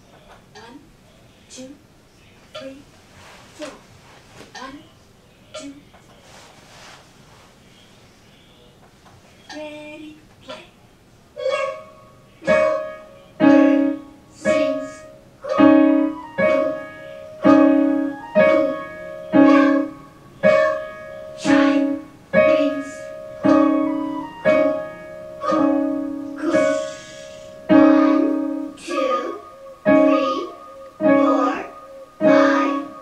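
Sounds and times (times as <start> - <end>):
slow piano notes: 11.4 - 33.0.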